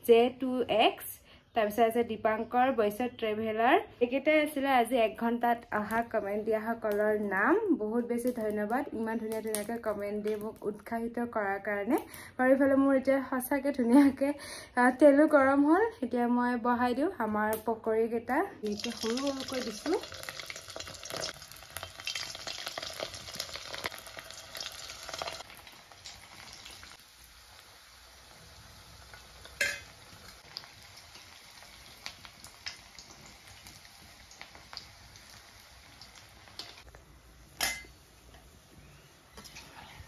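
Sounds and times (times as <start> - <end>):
fritters frying in hot oil: 18.6 - 40.0.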